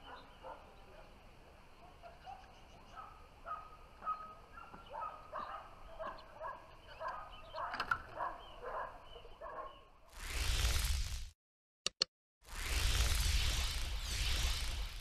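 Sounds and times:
dog barking: 0:00.0 - 0:01.2, 0:01.8 - 0:09.9.

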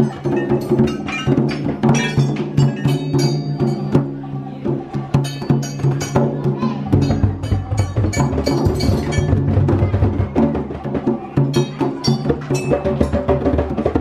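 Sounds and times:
toddlers slapping hand drums: 0:00.0 - 0:04.2, 0:05.0 - 0:14.0.

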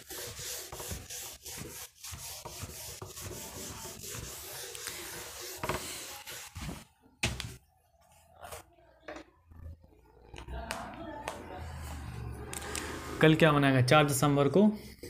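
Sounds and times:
scratching on hard writing surface: 0:00.0 - 0:06.8.

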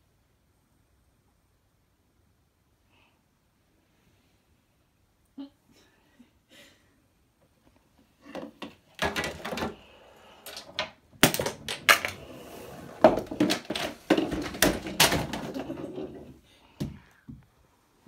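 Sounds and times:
small objects clattering: 0:08.3 - 0:16.4.

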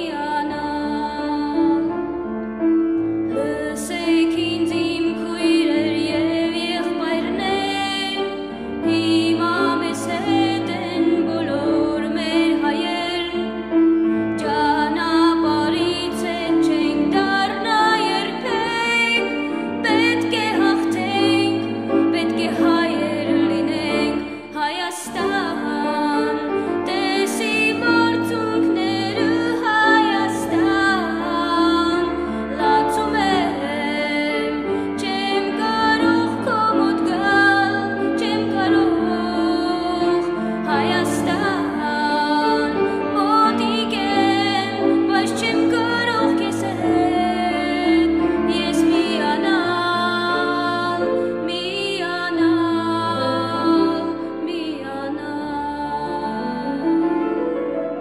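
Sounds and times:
person singing with vibrato: 0:14.4 - 0:57.3.

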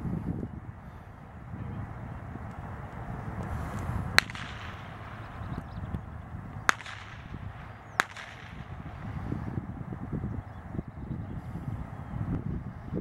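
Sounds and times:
blank pistol shots: 0:04.2 - 0:05.3, 0:06.7 - 0:08.8.

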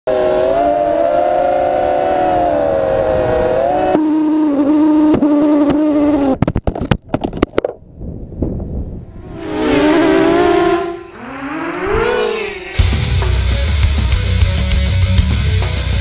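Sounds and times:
quadcopter motors whining: 0:09.1 - 0:13.1.

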